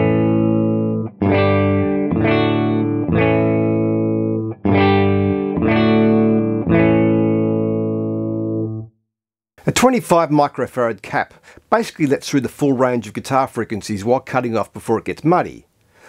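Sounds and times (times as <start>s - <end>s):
electric guitar chords ringing: 0.0s - 9.0s.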